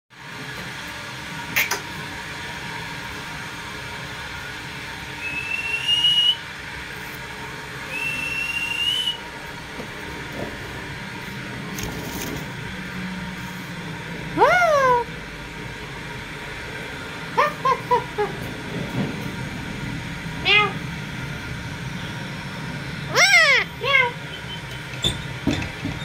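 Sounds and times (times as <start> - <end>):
long rising whistles: 5.2 - 6.5, 7.8 - 9.3.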